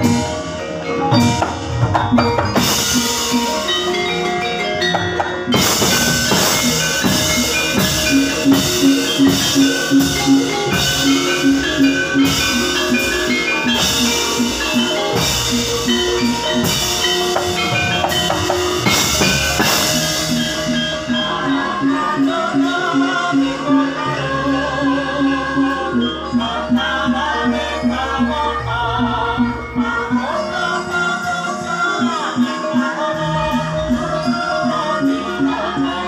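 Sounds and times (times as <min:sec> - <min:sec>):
drum beats: 0:00.0 - 0:36.0
gamelan playing: 0:00.0 - 0:36.0
person singing: 0:19.8 - 0:36.0.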